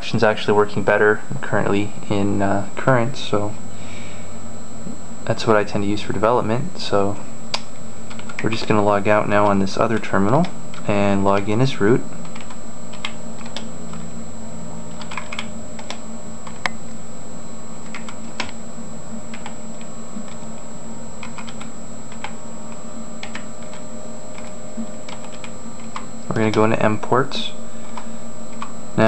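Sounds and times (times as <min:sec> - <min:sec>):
steady hum: 0:00.0 - 0:29.0
keyboard typing: 0:07.5 - 0:08.7, 0:12.2 - 0:14.1, 0:14.9 - 0:16.8, 0:17.8 - 0:18.6, 0:19.3 - 0:20.6, 0:21.2 - 0:26.7.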